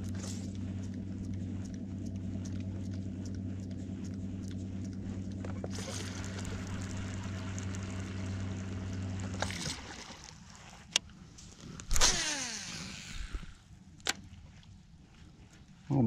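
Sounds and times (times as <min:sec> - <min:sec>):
electric trolling motor humming: 0:00.0 - 0:11.0, 0:11.8 - 0:13.7
fishing reel whirring: 0:05.7 - 0:10.3, 0:11.8 - 0:13.6
fishing cast whoosh: 0:11.9 - 0:13.4.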